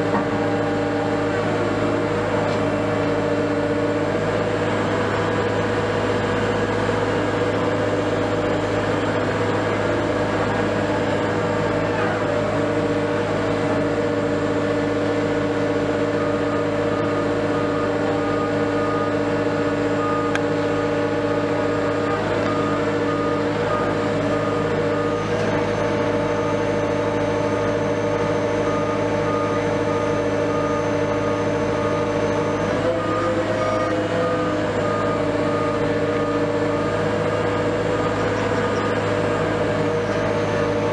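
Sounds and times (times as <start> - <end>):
heavy diesel engines running: 0.0 - 40.9
short electronic alarm beeps: 21.7 - 33.8.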